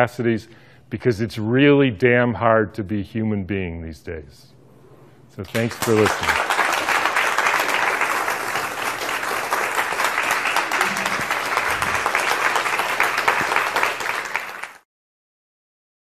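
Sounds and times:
audience applauding: 0:05.5 - 0:14.8.

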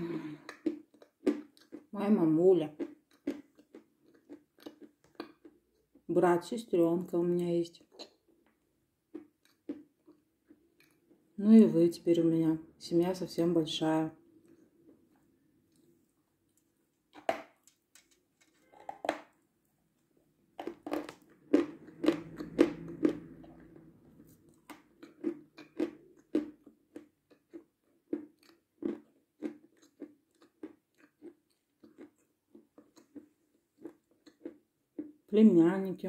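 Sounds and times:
meringue crunching being chewed: 0:00.1 - 0:01.9, 0:02.7 - 0:06.1, 0:07.8 - 0:11.3, 0:20.6 - 0:35.3.

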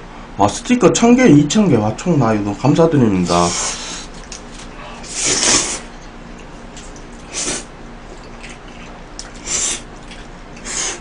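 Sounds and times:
chewing: 0:04.1 - 0:11.0
man slurping noodles: 0:05.0 - 0:05.9, 0:07.2 - 0:07.7, 0:09.3 - 0:11.0.

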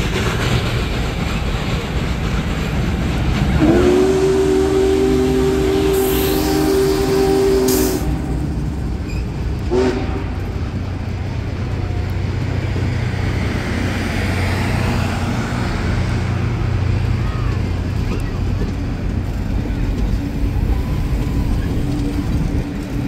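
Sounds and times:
train rumbling past on rails: 0:00.0 - 0:23.0
locomotive chime horn: 0:03.6 - 0:08.5, 0:09.7 - 0:10.6.

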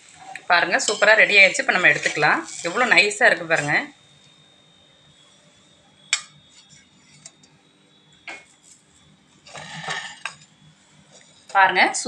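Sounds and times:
spatula clatter: 0:00.2 - 0:03.9, 0:09.4 - 0:10.5.

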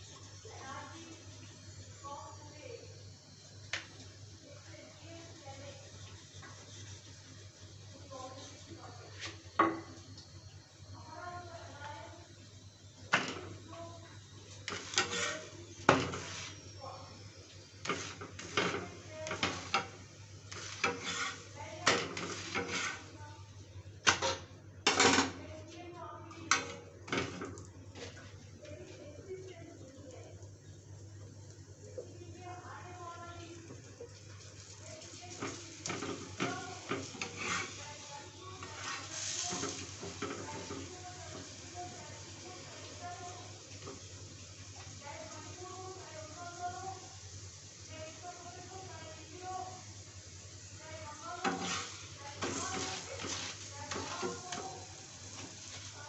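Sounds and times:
flatbread sizzling in oil: 0:00.0 - 0:25.4, 0:26.5 - 0:56.0
metal spatula scraping on griddle: 0:14.6 - 0:16.7, 0:17.8 - 0:23.2, 0:35.3 - 0:41.4, 0:51.3 - 0:55.9.

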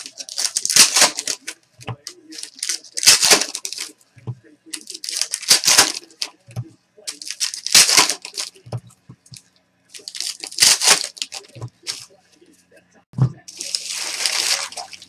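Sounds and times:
foil card wrappers crinkling and tearing: 0:00.0 - 0:04.0, 0:04.7 - 0:06.4, 0:07.1 - 0:08.6, 0:10.0 - 0:12.1, 0:13.5 - 0:15.0.

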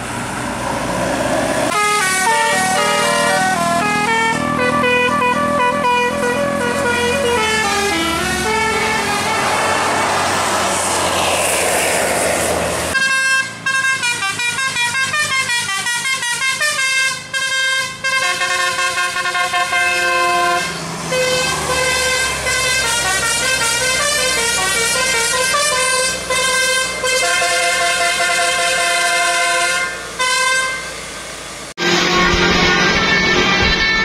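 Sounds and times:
multi-tone air horn tune: 0:01.7 - 0:10.0, 0:12.9 - 0:31.0, 0:31.8 - 0:34.0
loud rush of noise: 0:08.7 - 0:13.0, 0:31.0 - 0:34.0.

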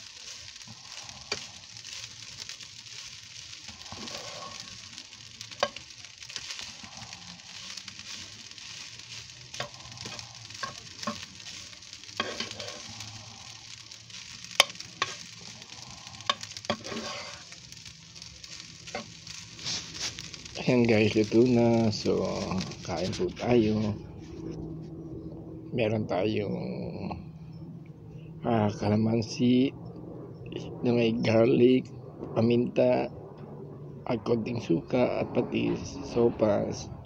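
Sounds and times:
spatula scraping a pan: 0:00.0 - 0:20.6
rice sizzling in a frying pan: 0:00.0 - 0:24.4.

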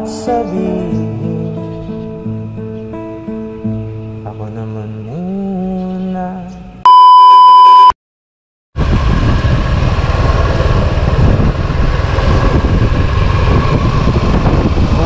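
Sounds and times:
soft music: 0:00.0 - 0:06.5
high-pitched electronic beep: 0:06.9 - 0:08.0
steady rushing rumble: 0:08.8 - 0:15.0.

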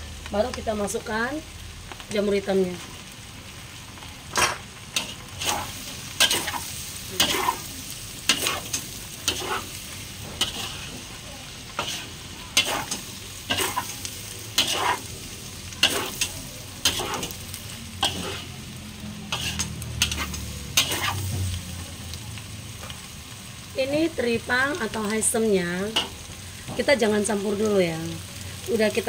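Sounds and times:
food frying sizzle: 0:00.0 - 0:29.0
metal spatula scraping a wok: 0:04.4 - 0:11.1, 0:11.7 - 0:15.1, 0:15.8 - 0:18.6, 0:19.3 - 0:21.5.

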